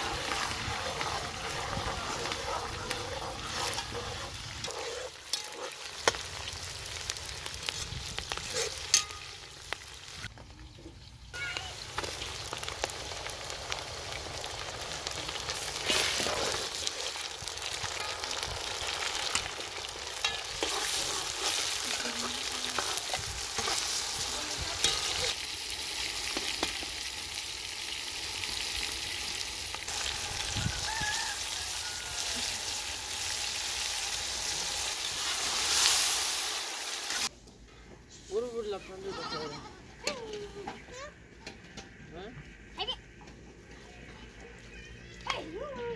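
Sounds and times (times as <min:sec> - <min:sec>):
ladle scraping a pot: 0:00.0 - 0:05.5
vegetables sizzling in oil: 0:00.0 - 0:37.3.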